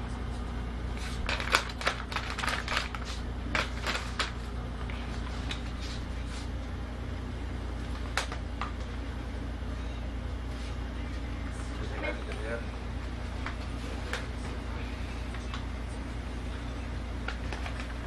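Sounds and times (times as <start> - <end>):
steady low hum: 0.0 - 18.0
newspaper rustling and crinkling: 1.0 - 4.5, 17.2 - 18.0.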